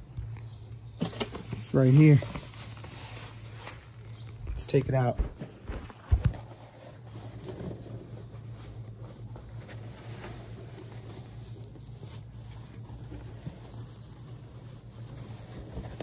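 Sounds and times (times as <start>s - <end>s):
packing wrap rustling: 1.0s - 4.4s.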